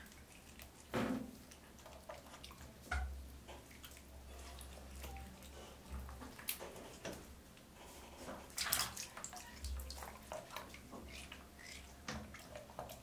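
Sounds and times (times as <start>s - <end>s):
water splashing in plastic tub: 8.2s - 13.0s.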